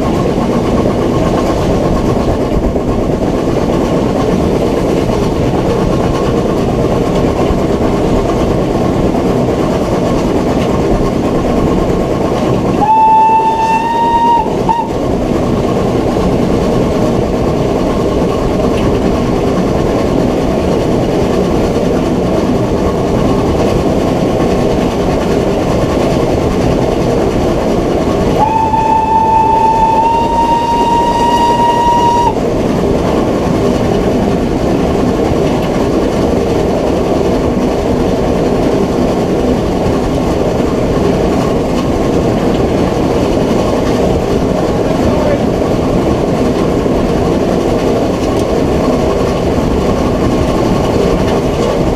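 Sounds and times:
steam locomotive running: 0:00.0 - 0:51.9
steam whistle blast: 0:12.8 - 0:15.0, 0:28.4 - 0:32.4.

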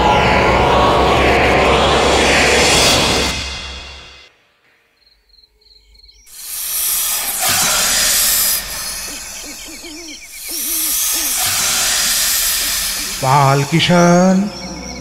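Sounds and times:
faint high chirps: 0:05.0 - 0:15.0
owl hooting: 0:06.3 - 0:15.0.

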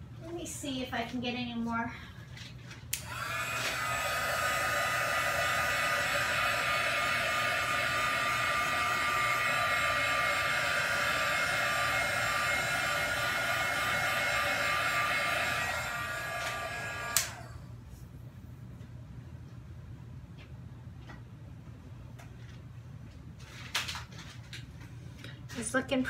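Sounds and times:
hair dryer switch click: 0:02.9 - 0:03.9, 0:16.4 - 0:17.5
hair dryer running: 0:02.9 - 0:17.8.

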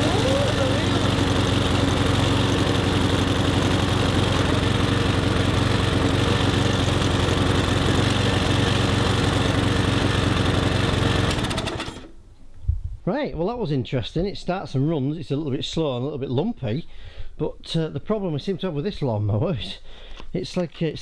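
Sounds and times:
engine winding down: 0:00.0 - 0:12.1
lawn mower engine running: 0:00.0 - 0:12.2.

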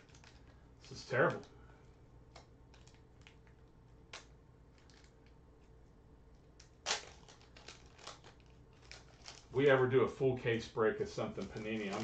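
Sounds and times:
foil wrapper crinkling: 0:00.0 - 0:01.4, 0:02.7 - 0:05.4, 0:06.8 - 0:09.8, 0:11.1 - 0:12.0
foil wrapper tearing: 0:06.8 - 0:09.6, 0:11.3 - 0:12.0.

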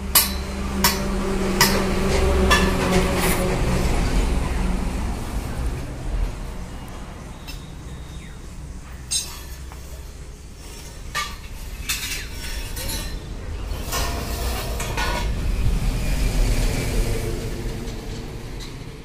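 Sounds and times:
steel tubing clinking: 0:09.0 - 0:09.9, 0:10.6 - 0:15.6
low rumble: 0:13.2 - 0:19.0.

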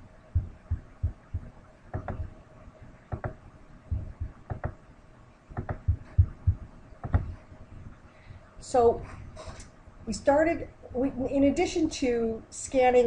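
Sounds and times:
faint steady hum: 0:00.0 - 0:13.0
soft paired knocks with dull thud: 0:01.4 - 0:02.3, 0:03.1 - 0:03.4, 0:05.6 - 0:07.4.

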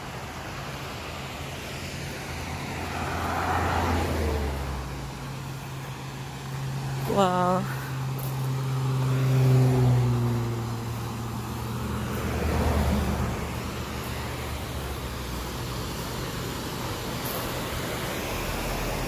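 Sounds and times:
vehicles passing on highway: 0:00.0 - 0:19.0
waterfall rushing: 0:10.5 - 0:19.0.

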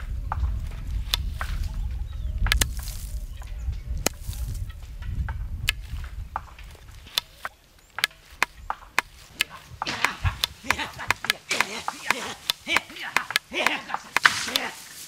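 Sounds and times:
sharp knocks: 0:08.0 - 0:14.6.

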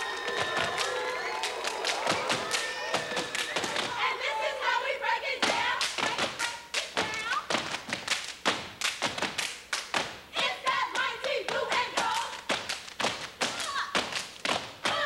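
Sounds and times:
hand claps: 0:00.0 - 0:04.0, 0:05.4 - 0:10.2, 0:10.9 - 0:15.0
rhythmic foot stomps: 0:00.0 - 0:04.1, 0:05.4 - 0:15.0
voices calling out: 0:00.0 - 0:06.2.

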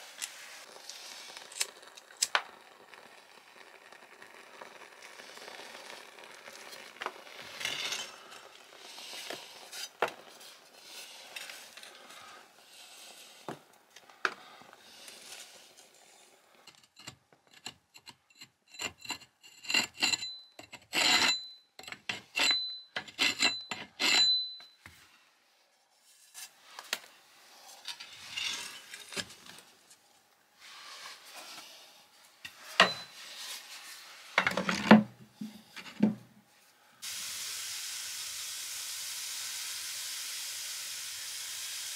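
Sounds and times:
wood fire crackling: 0:00.0 - 0:16.7
metal scraping strokes: 0:14.8 - 0:24.6, 0:27.4 - 0:29.2.

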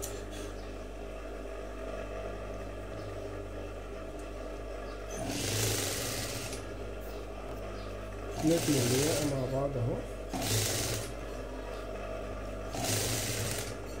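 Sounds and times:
sewing machine stitching: 0:05.1 - 0:06.6, 0:08.4 - 0:09.5, 0:10.3 - 0:11.2, 0:12.7 - 0:14.0
sewing machine motor humming: 0:05.1 - 0:06.7, 0:08.4 - 0:11.3, 0:12.7 - 0:14.0.

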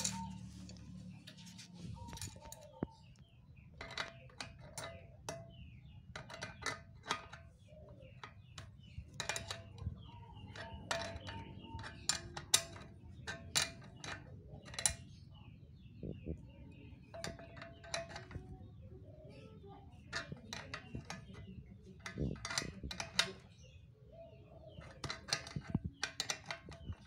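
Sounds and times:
spanner clicking on metal nut: 0:00.0 - 0:01.5, 0:03.8 - 0:15.2, 0:17.1 - 0:18.5, 0:20.1 - 0:23.6, 0:24.7 - 0:27.0.

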